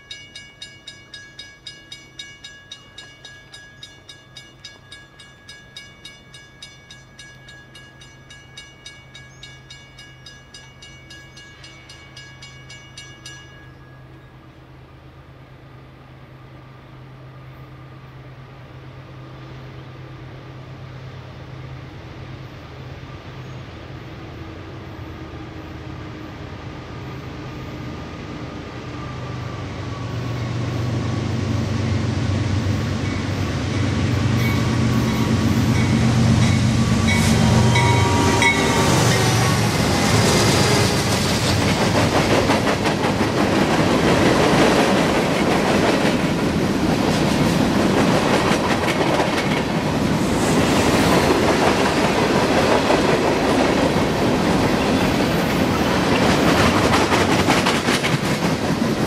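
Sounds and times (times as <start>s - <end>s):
diesel locomotives humming: 0.0s - 59.0s
train wheels clicking over rails: 33.8s - 59.0s.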